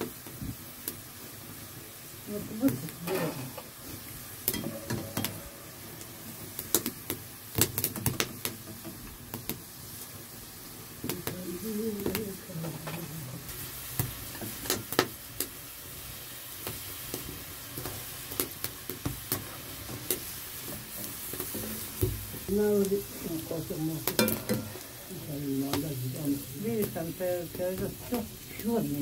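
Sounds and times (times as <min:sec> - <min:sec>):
chips sizzling in hot oil: 0:00.0 - 0:29.0
utensil clicking in pan: 0:24.0 - 0:24.8.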